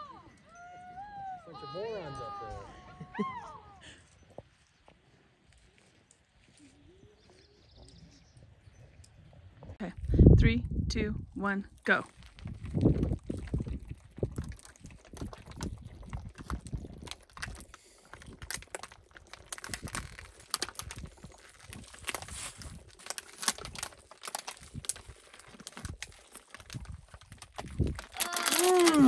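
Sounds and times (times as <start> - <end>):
people gulping water: 12.1 - 29.0
plastic bottles crinkling: 12.1 - 29.0.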